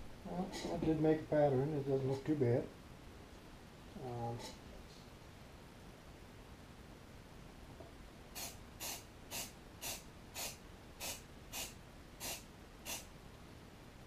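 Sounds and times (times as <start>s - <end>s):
aerosol spray can hissing: 8.4s - 13.1s.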